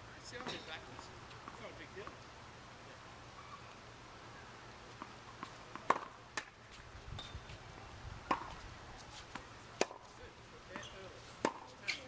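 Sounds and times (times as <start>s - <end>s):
tennis ball popping off racket: 5.0s - 6.6s, 8.3s - 8.6s, 9.3s - 10.1s, 10.7s - 11.7s.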